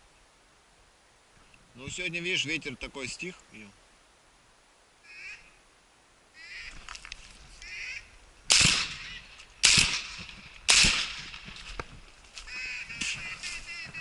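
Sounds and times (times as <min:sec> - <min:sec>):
duck quacks: 0:07.6 - 0:08.1, 0:12.5 - 0:14.0
shotgun shots: 0:08.5 - 0:11.6.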